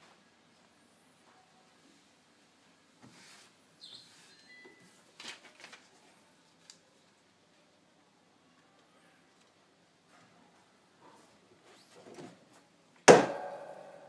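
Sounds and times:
paper and fabric rustling: 3.0s - 7.2s.

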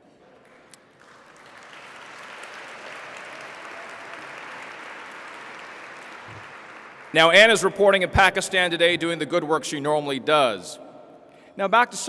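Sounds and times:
audience applauding: 0.4s - 7.6s.

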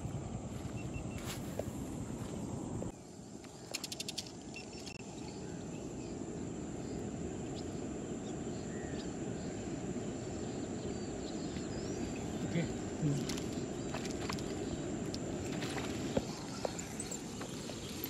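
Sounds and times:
high insect drone: 0.0s - 18.0s
faint bird chirps: 3.3s - 6.2s
quick run of clicks: 3.7s - 4.5s.

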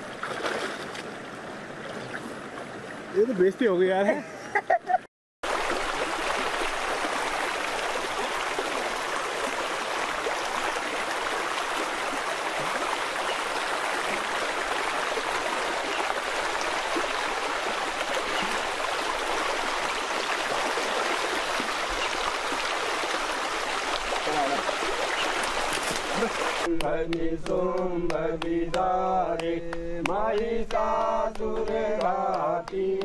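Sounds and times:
stream flowing over stones: 5.4s - 26.8s.

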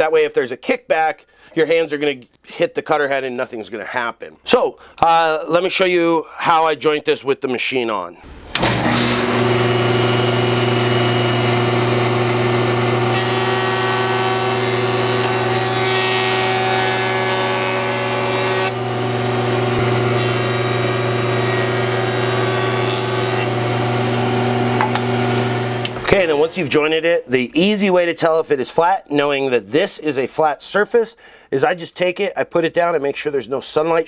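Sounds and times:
jointer motor hum: 8.5s - 26.1s
cutter head cutting board: 8.5s - 26.3s.

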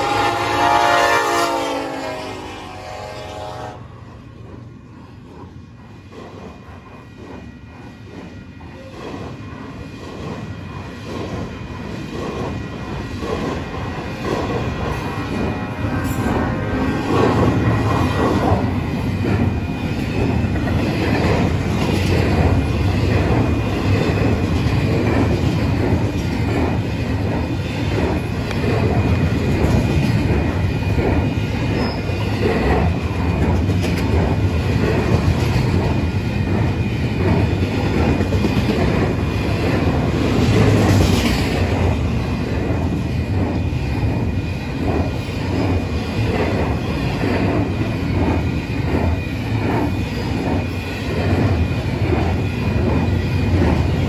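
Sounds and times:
steel wheels rumbling on rail: 0.0s - 54.0s
wheels clicking over rail joints: 17.1s - 54.0s.

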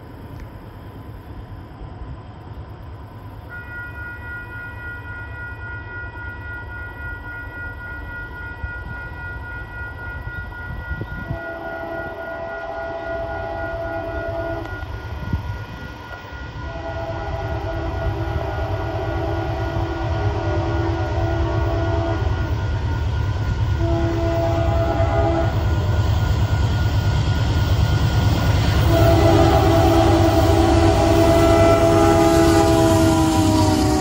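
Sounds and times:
train rumble: 0.0s - 34.0s
locomotive horn blasts: 3.5s - 22.8s, 23.7s - 25.8s, 28.8s - 34.0s.

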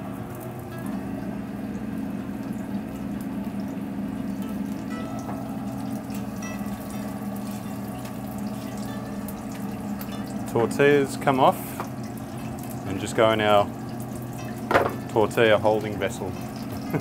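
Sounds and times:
kitchen equipment hum: 0.0s - 17.0s
oil bubbling and crackling: 0.0s - 17.0s.

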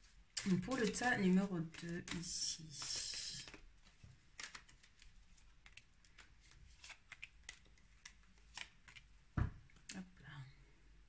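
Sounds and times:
cards shuffling: 0.3s - 9.1s
cards dealt on cloth table: 0.4s - 9.1s.

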